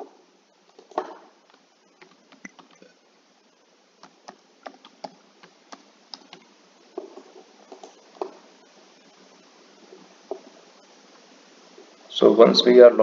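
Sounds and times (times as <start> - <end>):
keyboard keys clicking: 1.5 - 2.9, 4.0 - 8.4.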